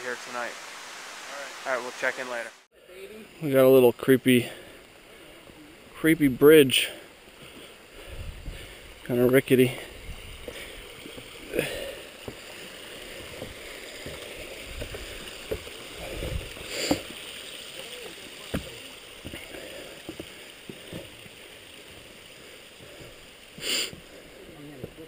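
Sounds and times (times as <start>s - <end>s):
stream water running: 0.0s - 25.0s
footsteps on wooden planks: 10.4s - 17.1s, 18.5s - 22.2s, 24.8s - 25.0s.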